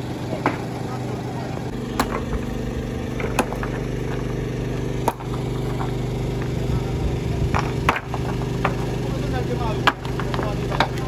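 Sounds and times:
machine engine running: 0.0 - 11.0
stones clacking together: 7.5 - 8.9, 9.8 - 11.0.

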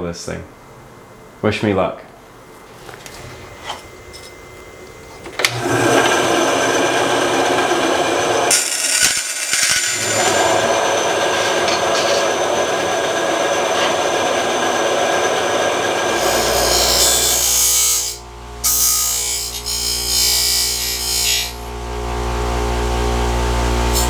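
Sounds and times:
band saw cutting aluminum sheet: 5.5 - 21.7.

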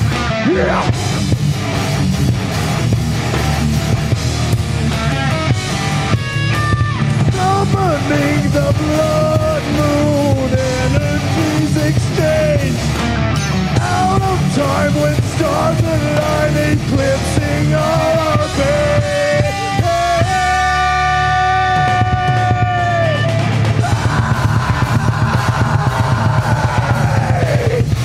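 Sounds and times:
lead guitar melody bending notes: 0.0 - 8.4
live rock band playing: 0.0 - 28.0.

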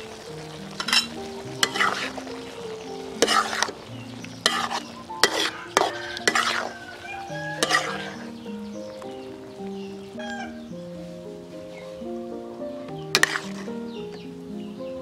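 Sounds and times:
food sizzling in a wok: 0.0 - 11.7, 13.0 - 14.0
background music: 0.0 - 15.0
metal spatula scraping a wok: 0.8 - 2.2, 3.2 - 3.8, 4.4 - 6.8, 7.6 - 8.2, 13.2 - 13.7.

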